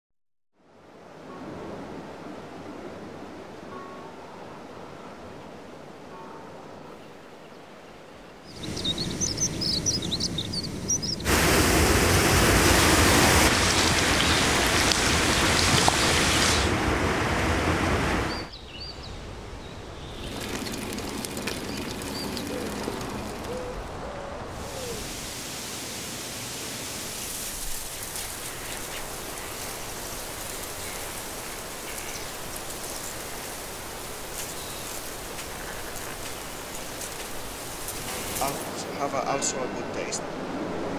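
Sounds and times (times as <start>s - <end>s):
birds chirping: 8.2s - 11.6s, 13.6s - 16.6s, 18.2s - 25.6s, 27.1s - 40.4s
steady hiss: 8.5s - 17.8s, 20.2s - 40.0s
loud rushing noise: 8.6s - 18.5s.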